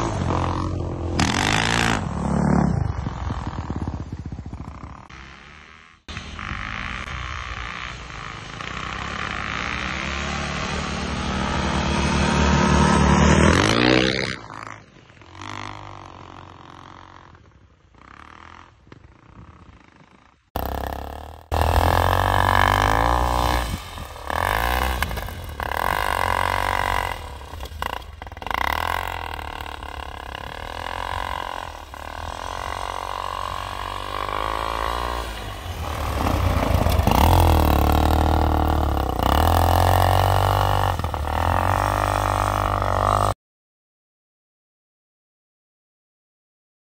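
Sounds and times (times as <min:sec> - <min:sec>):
snowbike engine revving: 0:00.0 - 0:43.4.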